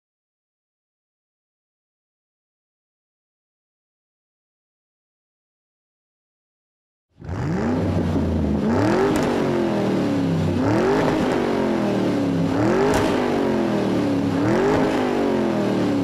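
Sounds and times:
race car engine revving: 7.2 - 16.0
sharp engine pops: 9.1 - 9.4, 12.8 - 13.3.

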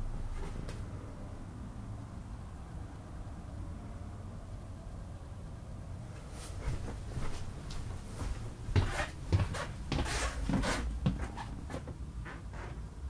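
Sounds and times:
steady low rumble: 0.0 - 3.9.

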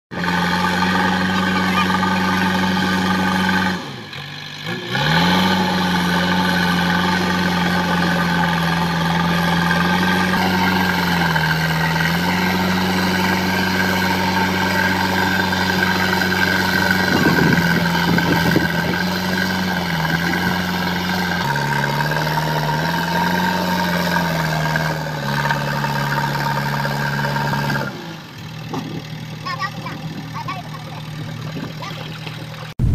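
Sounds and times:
diesel engine running: 0.1 - 32.9.

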